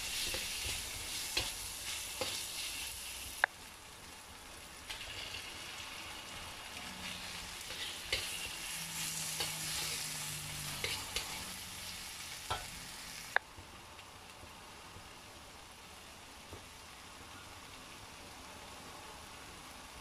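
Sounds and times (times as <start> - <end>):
metal spatula scraping a pan: 0.0 - 3.2, 4.9 - 5.9, 6.8 - 12.8
chicken sizzling in a wok: 0.0 - 20.0.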